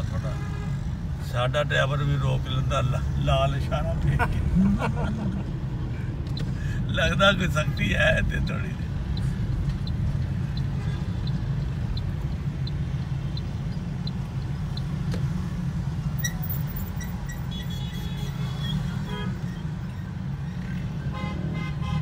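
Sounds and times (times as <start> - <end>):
car engine rumble and road noise: 0.0 - 22.0
light regular ticking: 6.1 - 15.6.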